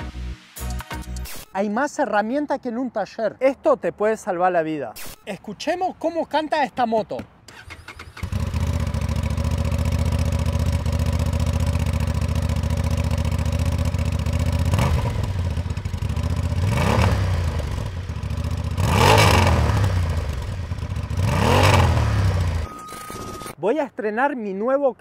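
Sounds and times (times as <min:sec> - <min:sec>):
motorcycle engine idling and revving: 0:07.5 - 0:22.7.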